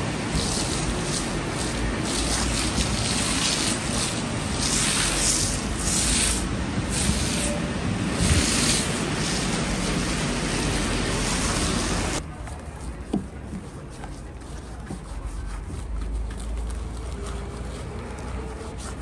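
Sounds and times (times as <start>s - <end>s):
foam spraying hiss: 0.1s - 12.2s.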